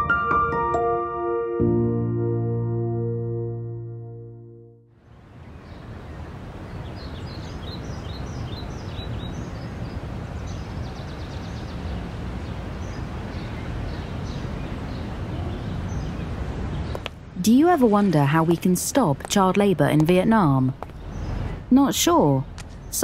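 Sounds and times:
birds chirping: 5.0 - 23.0
street noise hum: 5.0 - 23.0.

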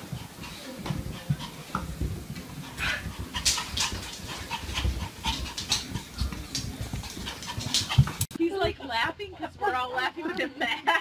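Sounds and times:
dog panting: 0.0 - 8.3.

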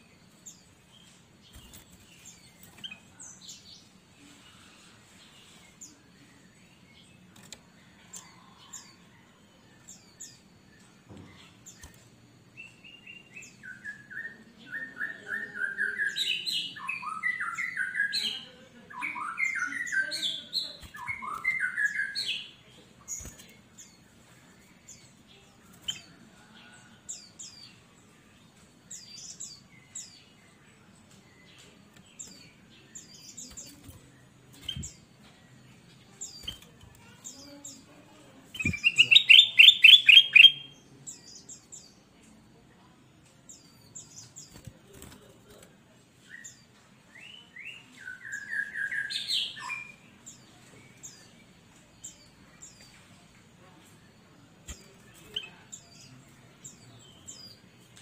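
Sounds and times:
faint high bird chirps: 0.0 - 45.3
rapid trilled bird chatter: 38.6 - 41.7.

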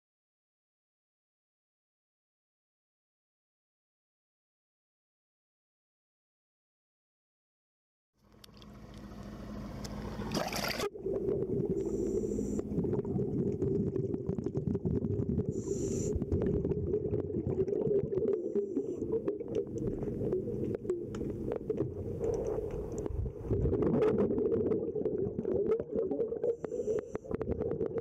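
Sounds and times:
low underwater rumble: 8.4 - 28.0
crackling clicks: 19.2 - 28.0.

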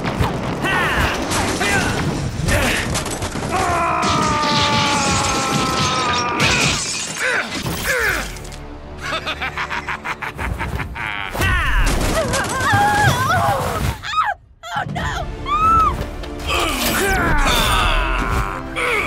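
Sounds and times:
crash and shatter hits: 0.0 - 8.5
music: 7.2 - 13.5, 14.1 - 19.0.

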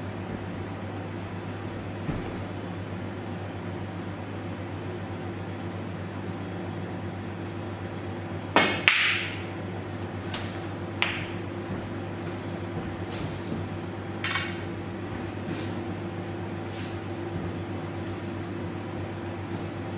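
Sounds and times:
low room hum: 0.0 - 19.9
cue striking ball: 8.6 - 9.5, 10.4 - 11.5, 14.2 - 14.7
snooker balls clicking: 8.6 - 12.0
snooker balls clacking: 8.6 - 15.1.

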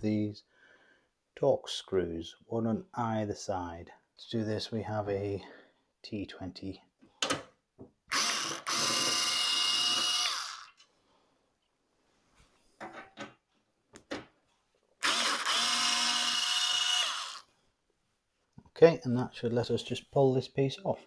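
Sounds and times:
cordless screwdriver running: 8.1 - 10.8, 15.0 - 17.4.

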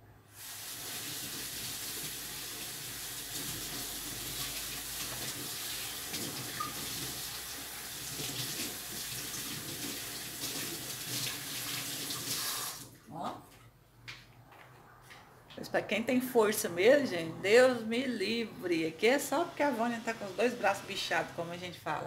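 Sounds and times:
tap water running and splashing: 0.3 - 13.0.

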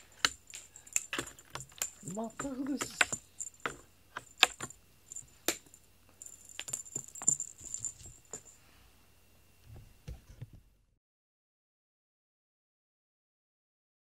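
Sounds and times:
metal collar tag jingling: 0.0 - 8.6.

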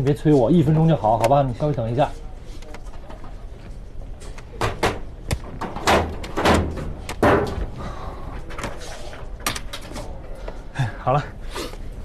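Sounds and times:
photocopier panels clunking: 4.6 - 7.7.

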